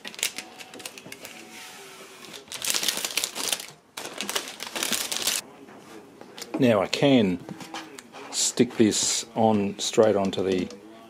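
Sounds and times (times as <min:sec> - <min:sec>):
plastic film crinkling: 0:00.0 - 0:01.5, 0:02.2 - 0:05.4
plastic film peeling: 0:00.0 - 0:01.5, 0:02.2 - 0:05.4.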